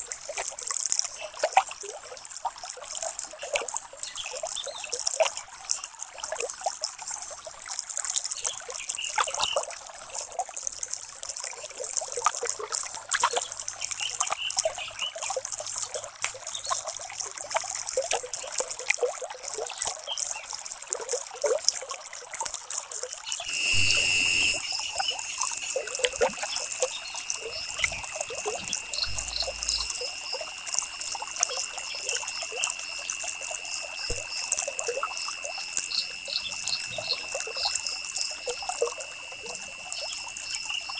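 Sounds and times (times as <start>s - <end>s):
water trickling: 0.0s - 40.9s
faint high steady tone: 23.4s - 40.9s.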